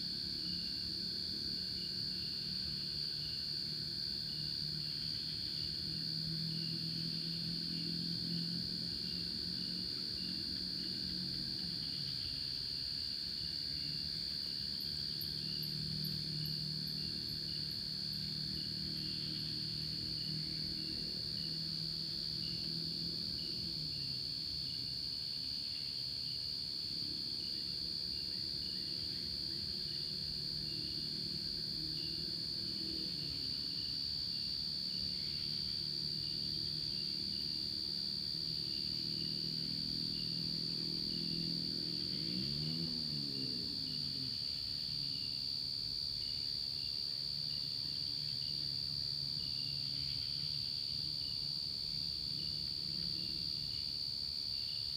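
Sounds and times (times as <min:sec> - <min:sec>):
cricket drone: 0:00.0 - 0:54.9
insect chirping: 0:00.0 - 0:54.9.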